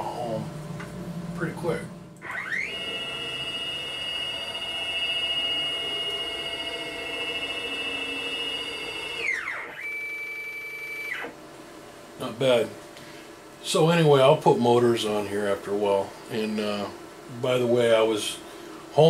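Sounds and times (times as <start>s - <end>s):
stepper motor whine: 0.8s - 11.4s.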